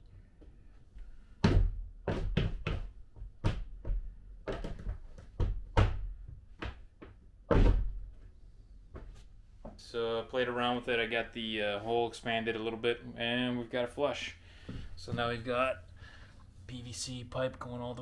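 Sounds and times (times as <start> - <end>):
foot stamping on plastic plate: 1.4 - 8.0.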